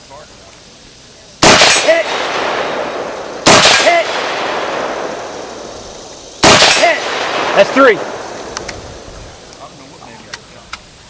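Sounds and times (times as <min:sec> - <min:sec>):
rifle shots with echo: 0:01.4 - 0:09.5.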